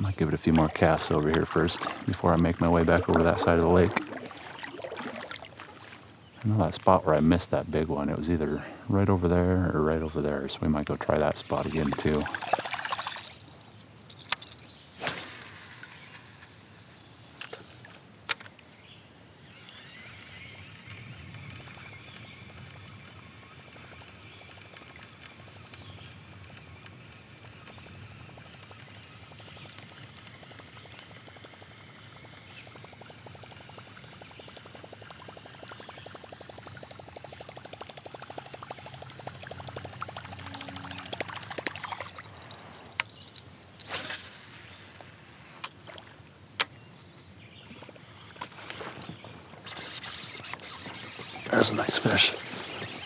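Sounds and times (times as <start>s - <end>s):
water lapping: 0.0s - 6.3s, 11.2s - 13.5s, 28.3s - 42.9s, 49.6s - 53.0s
fishing reel ticking whir: 19.6s - 41.8s, 49.7s - 53.0s
sharp clicks: 27.7s - 41.9s, 49.7s - 53.0s.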